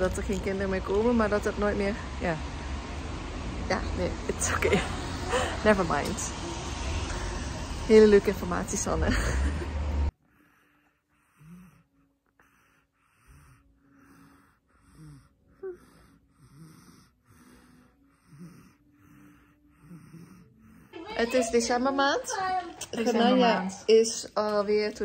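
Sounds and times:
toddler breathing raspily: 10.1 - 21.3.

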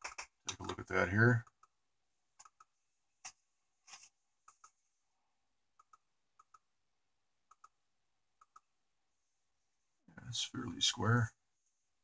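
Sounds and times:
computer mouse clicks: 0.0 - 0.8, 2.4 - 2.7, 5.8 - 6.6, 7.5 - 7.8, 8.4 - 8.7.

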